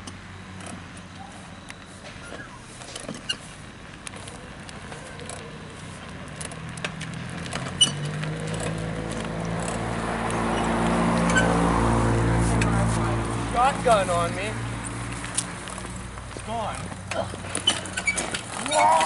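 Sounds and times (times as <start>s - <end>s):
engine running: 0.0s - 18.7s.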